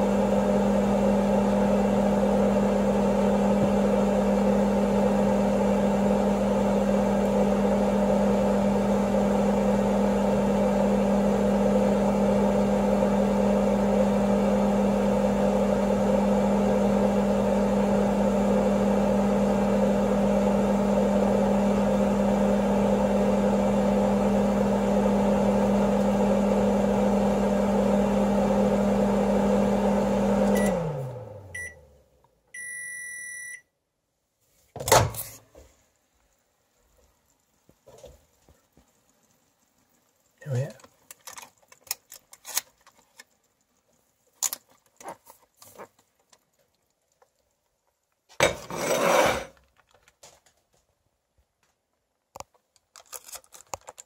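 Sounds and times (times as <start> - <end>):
microwave oven humming: 0.0 - 32.0
microwave long beep: 15.8 - 31.9, 32.6 - 33.7.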